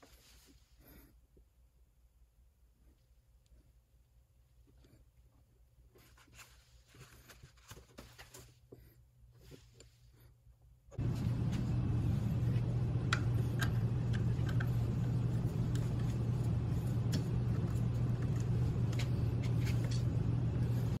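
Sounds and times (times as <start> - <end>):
low machine hum: 10.2 - 21.0.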